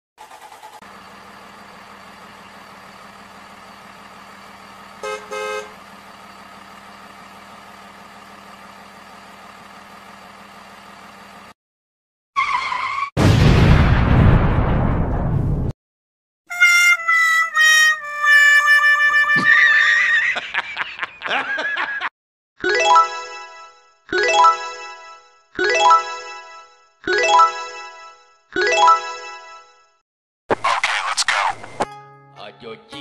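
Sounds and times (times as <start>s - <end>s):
car engine running: 0.2s - 11.6s
car horn honks: 5.0s - 5.8s.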